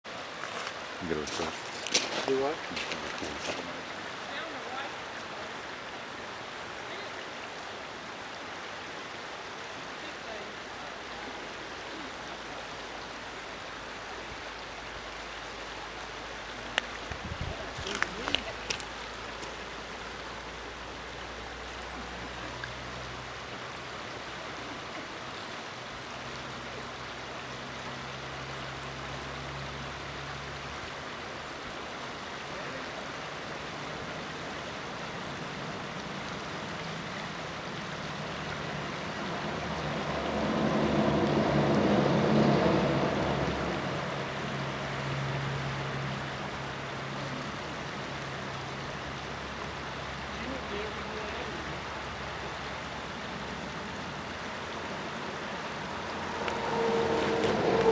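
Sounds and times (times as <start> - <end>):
creek water running over rocks: 0.0 - 57.9
low rumble: 54.0 - 57.9.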